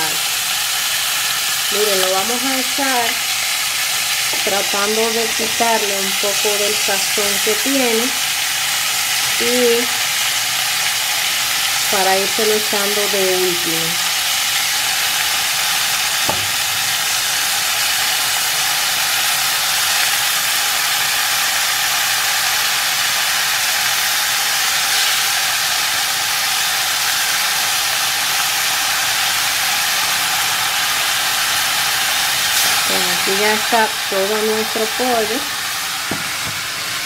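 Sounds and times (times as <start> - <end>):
chicken sizzling in caramel: 0.0 - 37.0
sharp knock: 16.2 - 16.6.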